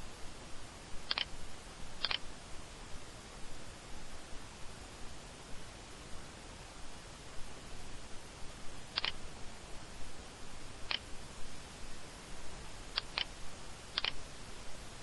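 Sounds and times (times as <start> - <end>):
steady hiss: 0.0 - 15.0
computer mouse clicking: 1.1 - 1.3, 2.0 - 2.2, 8.9 - 9.2, 10.9 - 11.1, 12.9 - 13.3, 13.9 - 14.2.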